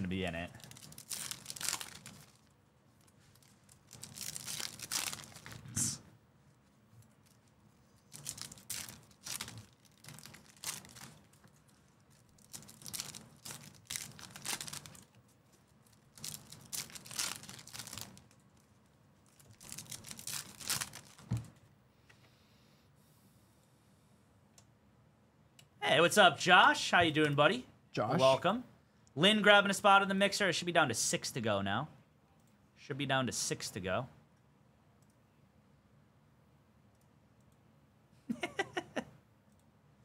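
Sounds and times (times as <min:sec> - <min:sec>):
foil wrapper crinkling and tearing: 0:00.5 - 0:05.6, 0:07.2 - 0:15.2, 0:15.8 - 0:21.4.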